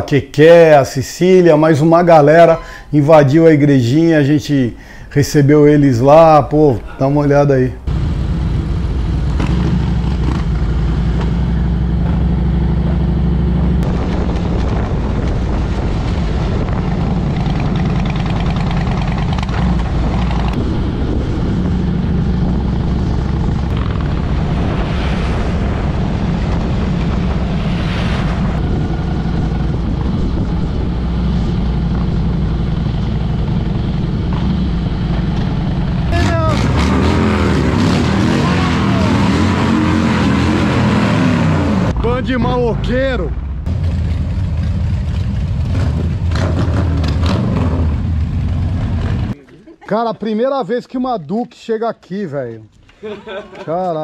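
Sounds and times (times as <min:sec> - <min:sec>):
motorcycle engine running: 0:07.9 - 0:24.5, 0:28.7 - 0:36.9, 0:43.7 - 0:49.4
wind noise rushing: 0:13.2 - 0:43.7.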